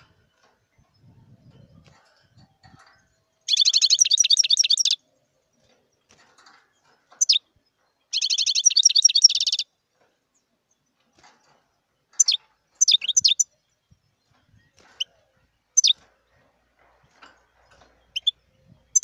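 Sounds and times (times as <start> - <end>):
goldfinch trilled song: 0.0 - 5.3, 7.1 - 9.7, 12.1 - 16.1, 17.1 - 19.0.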